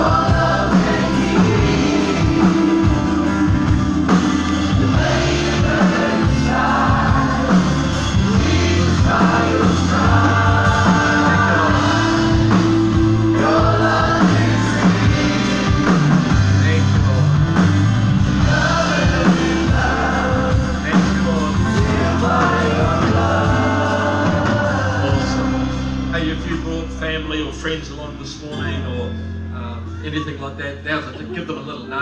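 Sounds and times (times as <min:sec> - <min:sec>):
voices singing together: 0:00.0 - 0:16.9, 0:18.2 - 0:26.4
worship band playing: 0:00.0 - 0:32.0.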